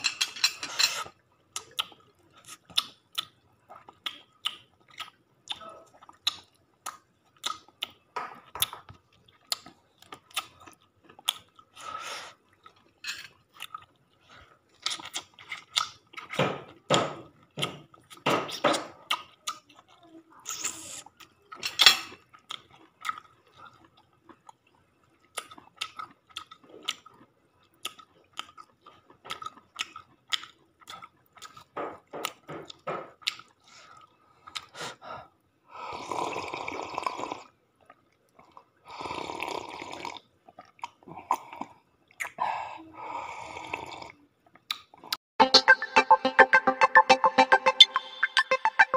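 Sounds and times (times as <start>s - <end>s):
chewing and crunching: 0.9s - 16.8s, 19.0s - 34.8s, 40.2s - 42.4s.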